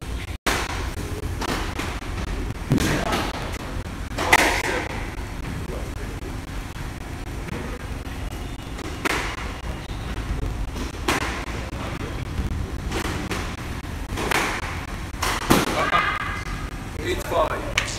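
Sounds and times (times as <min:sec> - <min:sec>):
steady low rumble: 0:00.0 - 0:17.9
squash ball knocks: 0:02.6 - 0:04.8, 0:12.9 - 0:16.4.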